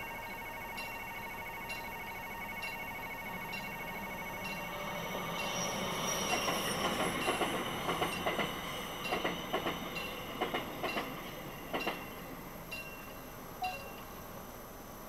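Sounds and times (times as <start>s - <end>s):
train wheels clacking over rail joints: 6.2s - 12.2s.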